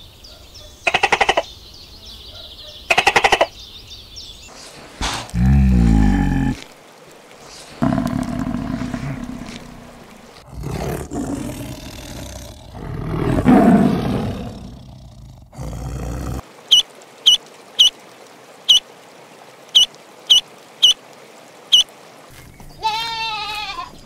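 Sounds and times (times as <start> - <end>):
tiger roaring: 5.0 - 6.6, 7.8 - 16.4.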